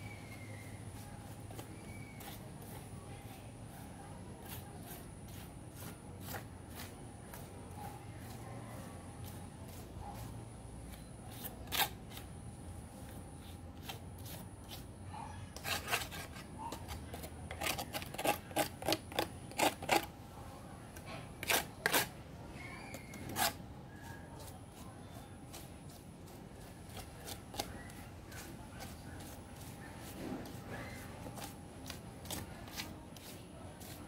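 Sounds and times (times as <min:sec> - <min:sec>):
trowel scraping gritty soil: 0:01.3 - 0:07.5, 0:10.9 - 0:12.3, 0:13.4 - 0:14.9, 0:15.6 - 0:20.1, 0:21.4 - 0:22.2, 0:22.9 - 0:23.6, 0:24.4 - 0:34.0.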